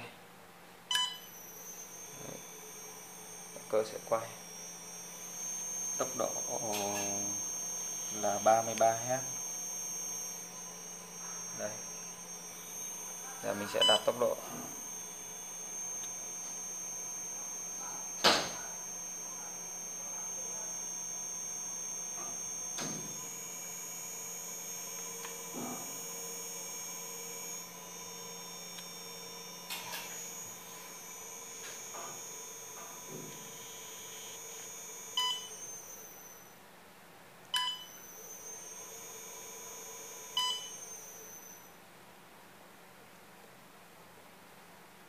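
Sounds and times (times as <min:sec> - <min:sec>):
steady electrical hum: 0:00.0 - 0:45.0
short electronic beep: 0:00.9 - 0:01.4
faint high whine: 0:00.9 - 0:36.6, 0:37.5 - 0:41.8.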